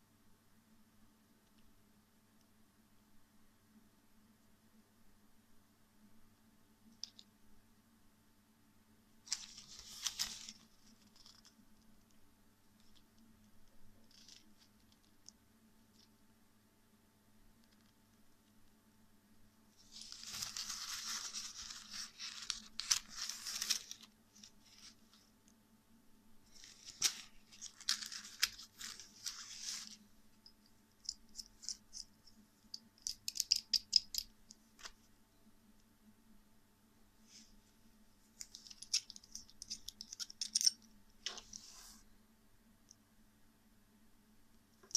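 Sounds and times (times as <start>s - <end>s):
wallet rustling: 9.3s - 11.5s, 19.9s - 25.1s, 26.5s - 30.0s
metal bits clicking: 30.6s - 34.3s, 38.4s - 40.9s.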